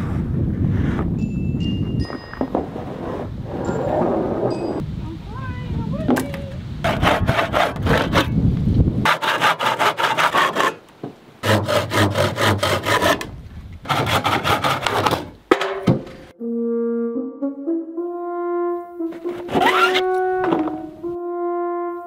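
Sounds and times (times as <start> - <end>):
hand saw cutting wood: 6.8 - 8.4, 9.1 - 10.8, 11.4 - 15.4, 19.2 - 20.0.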